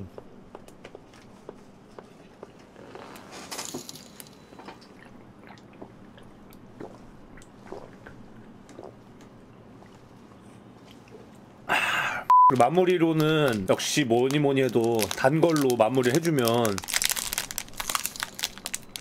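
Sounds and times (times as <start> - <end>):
person gulping a drink: 4.6 - 11.8.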